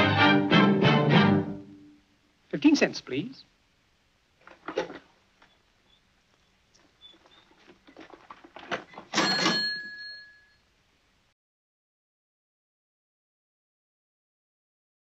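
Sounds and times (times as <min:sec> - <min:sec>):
cash register clicks and clacks: 0:08.7 - 0:10.4
cash register bell ringing: 0:09.1 - 0:10.6.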